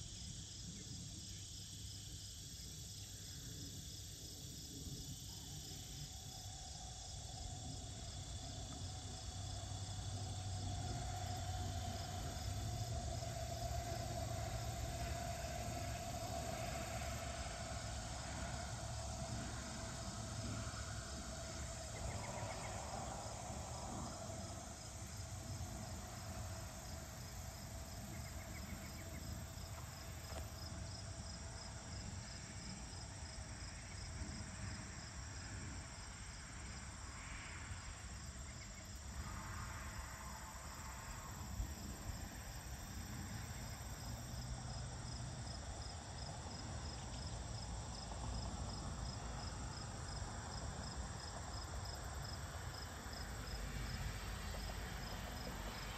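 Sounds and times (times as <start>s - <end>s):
crickets chirping: 0.0s - 55.9s
low steady rumble: 3.5s - 37.3s.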